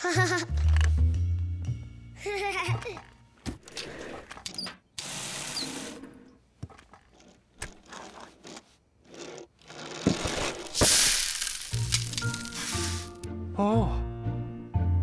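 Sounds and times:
toy car wheels whirring: 5.0s - 13.1s.

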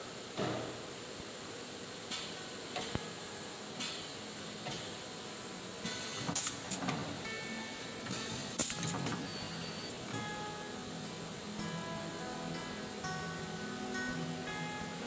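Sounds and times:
steady machine noise: 0.9s - 15.0s
printing head shuttling: 8.0s - 9.3s.

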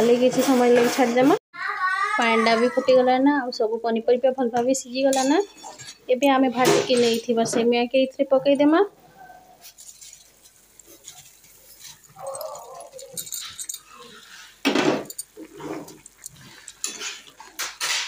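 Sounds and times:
ladle scraping metal pan: 13.2s - 18.0s.

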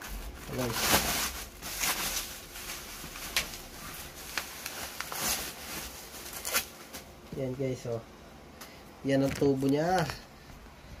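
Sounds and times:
plastic packaging rustling: 0.0s - 7.1s.

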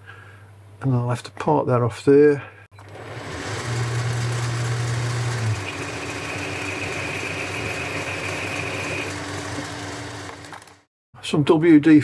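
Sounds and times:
high tone from cutting tool: 2.8s - 10.4s
lathe humming: 2.8s - 10.9s.

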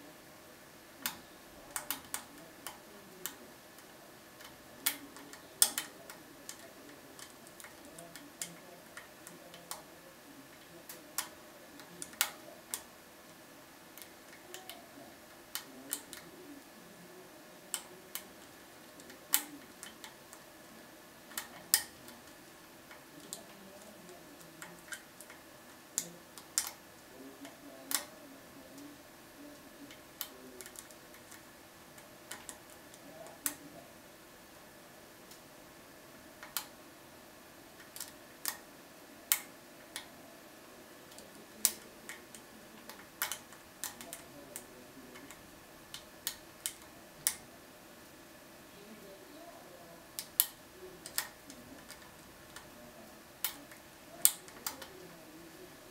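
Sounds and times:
lock pick clicking on pins: 41.1s - 44.2s.

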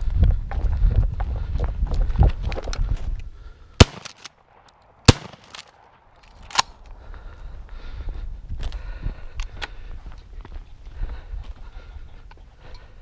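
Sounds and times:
shotgun shots: 3.8s - 6.1s.

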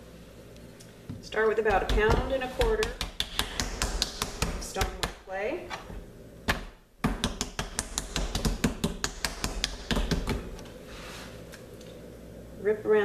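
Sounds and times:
hands patting clay: 1.6s - 5.2s, 6.5s - 10.7s.

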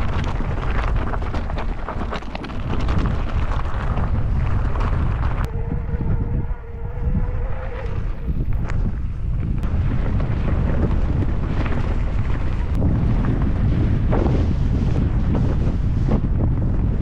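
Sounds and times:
bike clicks and knocks: 0.0s - 5.5s
wind buffeting microphone: 0.0s - 17.0s.

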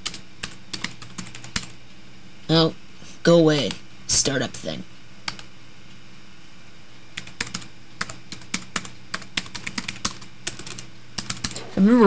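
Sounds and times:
laptop keyboard typing: 0.0s - 1.8s, 5.2s - 5.5s, 7.2s - 11.6s.

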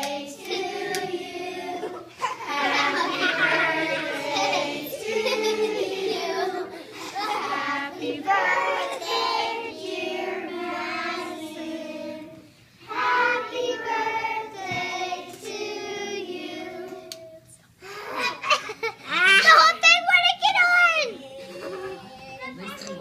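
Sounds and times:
group singing birthday song: 0.0s - 17.6s.

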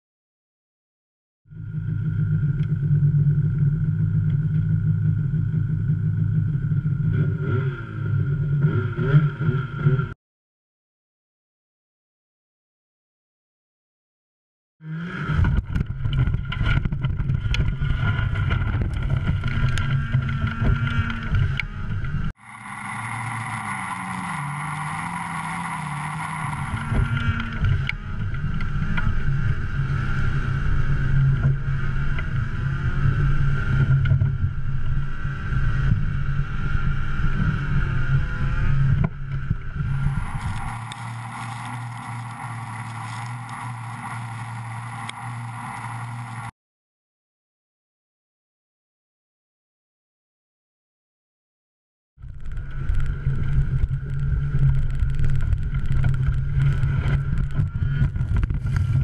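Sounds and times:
snowmobile engine running hard: 1.6s - 10.2s, 14.8s - 46.5s, 52.3s - 59.0s.

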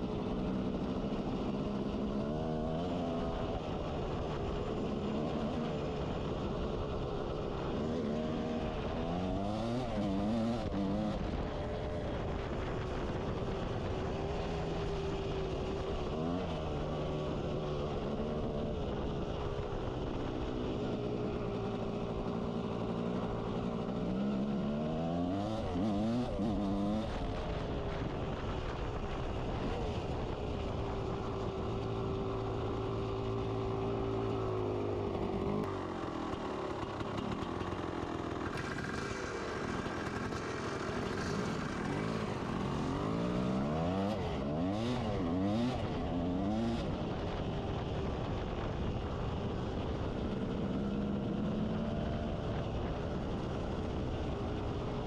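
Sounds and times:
dirt bike engine revving: 38.5s - 46.8s.

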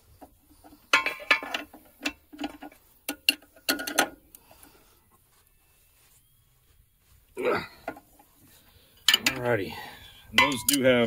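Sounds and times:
sharp metallic clinks: 10.3s - 11.0s.

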